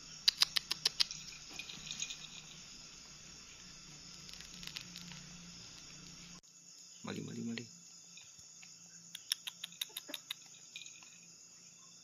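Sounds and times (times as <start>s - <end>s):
sharp clicks: 0.2s - 1.2s.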